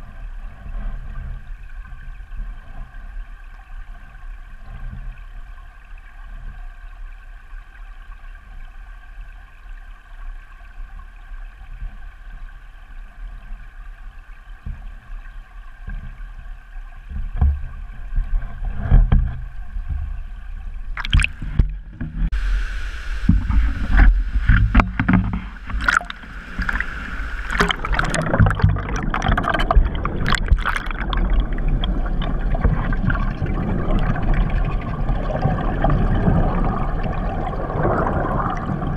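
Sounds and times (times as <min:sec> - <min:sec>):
rushing water: 0:00.0 - 0:38.9
underwater hum: 0:11.4 - 0:38.9.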